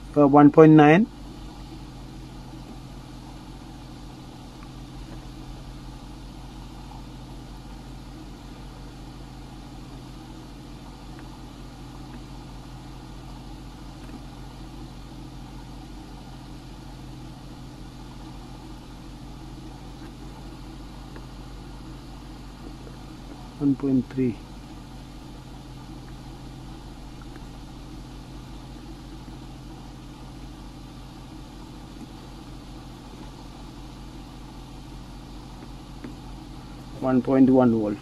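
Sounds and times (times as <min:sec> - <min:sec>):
low room hum: 0:00.0 - 0:38.0.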